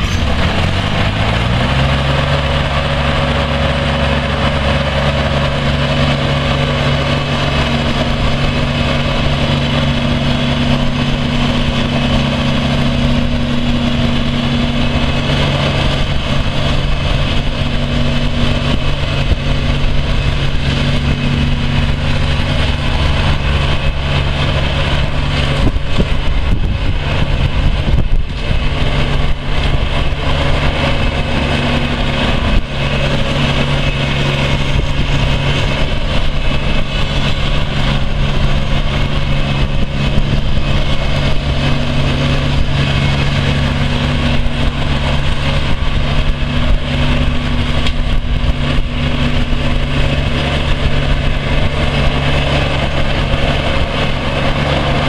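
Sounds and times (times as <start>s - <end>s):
diesel mower engine running: 0.0s - 55.0s.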